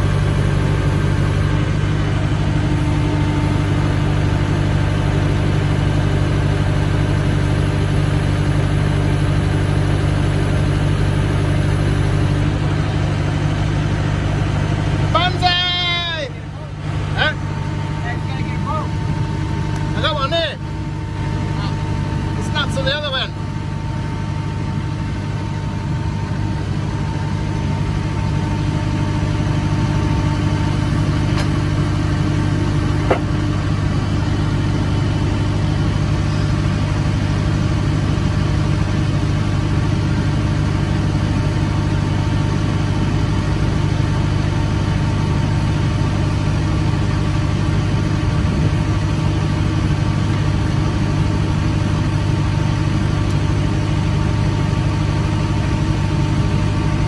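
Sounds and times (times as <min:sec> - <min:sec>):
engine idling: 0:00.0 - 0:57.0
sharp knock: 0:33.1 - 0:33.3.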